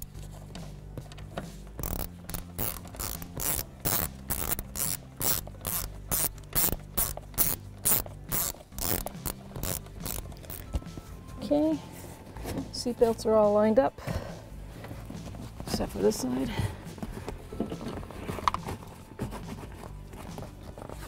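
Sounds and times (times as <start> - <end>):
ratchet pawl clicking: 1.8 - 10.7.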